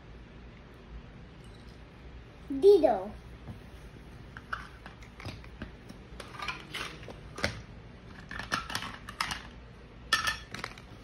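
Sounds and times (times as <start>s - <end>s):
toy kitchen pieces clacking: 6.2s - 10.9s.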